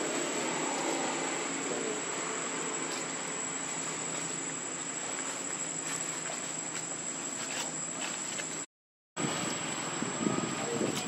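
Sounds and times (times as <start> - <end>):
background hiss: 0.0 - 11.0
insects droning: 0.0 - 11.0.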